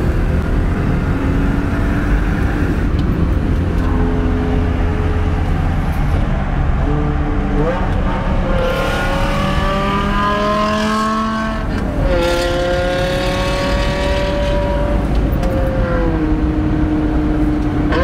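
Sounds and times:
car engine accelerating hard: 0.0 - 18.0
road noise: 0.0 - 18.0.

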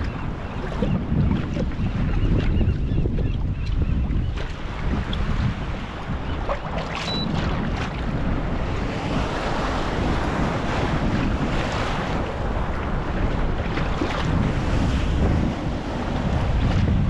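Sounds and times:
water slapping around kayak: 0.0 - 17.0
wind buffeting microphone: 0.0 - 17.0.

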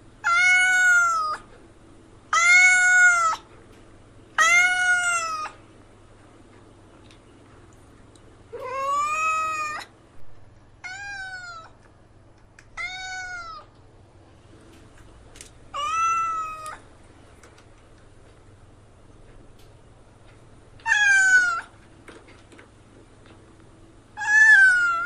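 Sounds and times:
cat meowing: 0.2 - 1.5, 2.3 - 3.5, 4.4 - 5.6, 8.5 - 9.9, 10.8 - 11.8, 12.8 - 13.8, 15.7 - 16.8, 20.8 - 21.8, 24.2 - 25.0.

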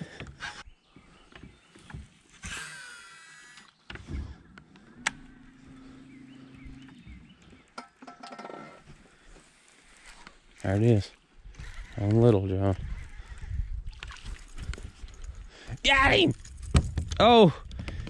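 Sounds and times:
fishing reel spool whining: 2.4 - 3.8, 5.0 - 7.4, 11.5 - 12.3
steady low hum: 4.5 - 7.7.

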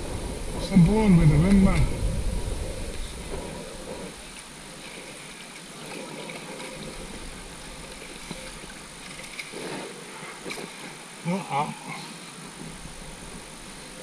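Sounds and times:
moving water: 0.0 - 14.0
faint paddle splashes: 3.0 - 11.1.

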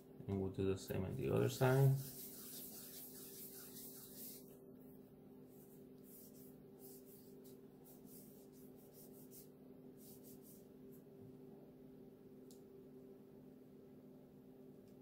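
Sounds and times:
steady low hum: 0.0 - 15.0
palms rolling fondant: 1.5 - 4.5.

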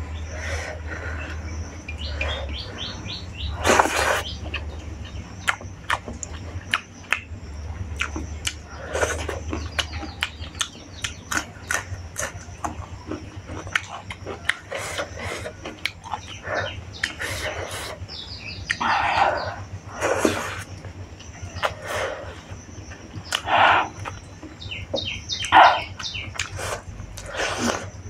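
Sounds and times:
steady low hum: 0.0 - 28.0
crisp chewing with mouth clicks: 3.6 - 18.9, 20.0 - 28.0
fingers squishing rice and curry: 20.0 - 28.0.

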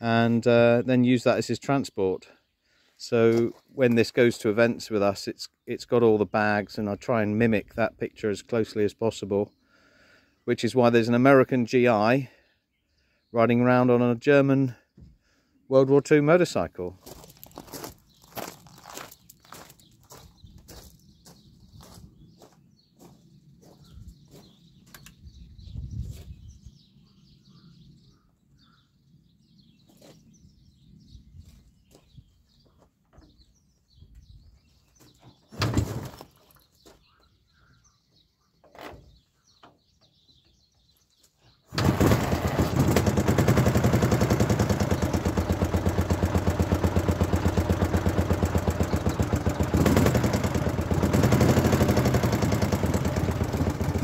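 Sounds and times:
faint bird chirps: 18.2 - 35.5, 36.4 - 41.7
motorcycle engine running: 41.7 - 54.0.

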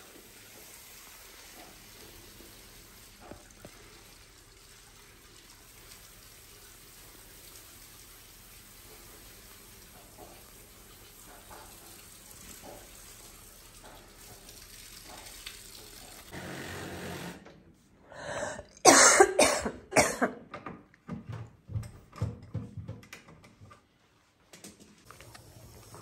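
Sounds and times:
person coughing: 18.4 - 20.4.

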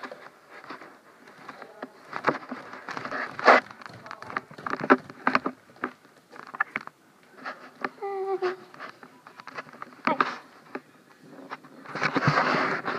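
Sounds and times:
fur rubbing on microphone: 11.4 - 12.9.

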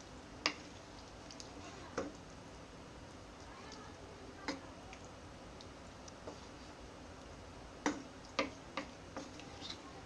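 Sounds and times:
spoon knocking against frying pan: 7.8 - 9.3.

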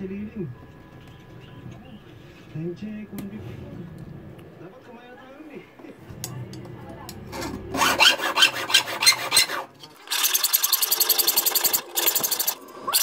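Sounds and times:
needle file rasping on metal: 7.3 - 13.0.

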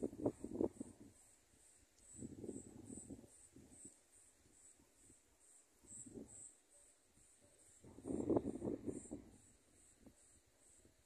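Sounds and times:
wind buffeting microphone: 0.0 - 1.2, 2.2 - 3.9, 7.8 - 9.4
crickets chirping: 0.0 - 11.0.

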